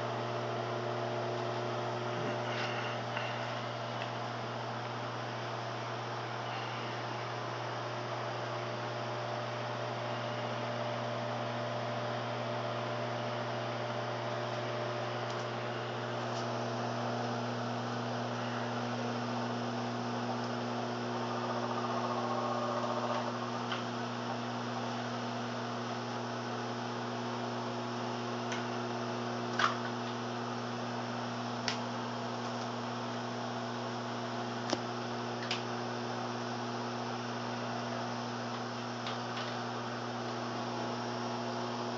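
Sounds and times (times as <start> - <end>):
microwave oven humming: 0.0 - 41.9.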